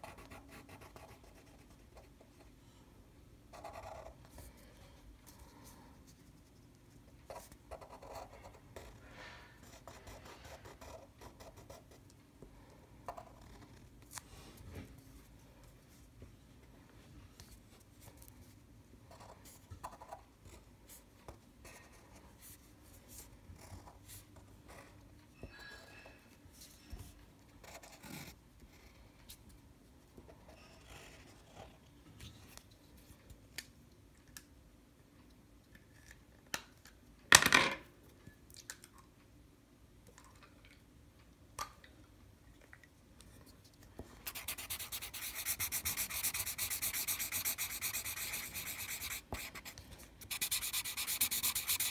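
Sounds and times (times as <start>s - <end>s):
marker scratching on paper: 44.2s - 51.9s
marker scribbling: 44.2s - 51.9s.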